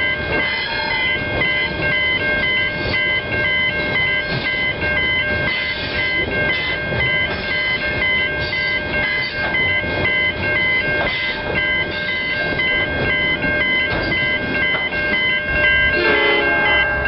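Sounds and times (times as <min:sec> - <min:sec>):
high ringing alternating tones: 0:00.0 - 0:17.0
train wheels rumbling on rails: 0:00.0 - 0:17.0.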